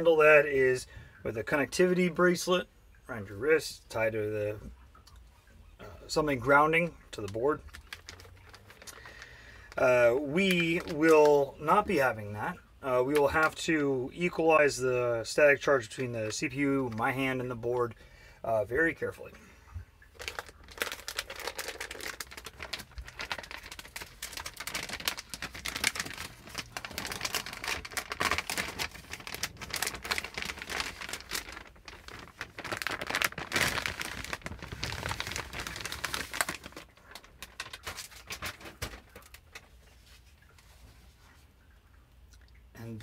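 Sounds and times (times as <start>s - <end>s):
plastic bag crinkling: 6.1s - 12.2s, 20.0s - 40.2s.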